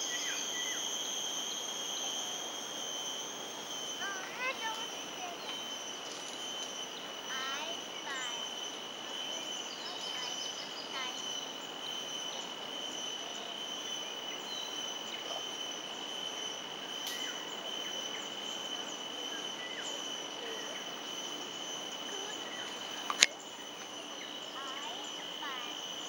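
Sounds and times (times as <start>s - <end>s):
high insect drone: 0.0s - 26.0s
sharp click: 23.0s - 23.4s.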